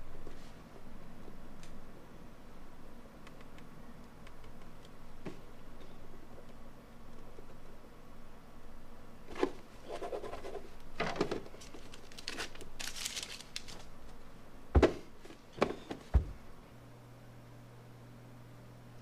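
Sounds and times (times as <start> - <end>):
paper rustling and crinkling: 11.0 - 13.9.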